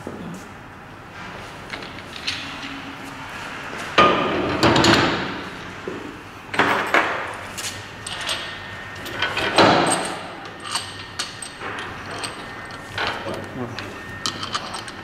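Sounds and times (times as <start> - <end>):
metal parts clinking and clunking: 8.0 - 15.0.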